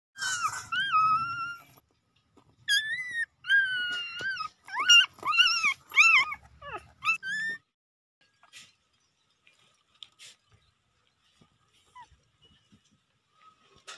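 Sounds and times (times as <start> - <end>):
puppy whining: 0.2 - 1.8, 2.6 - 7.8, 11.8 - 12.6.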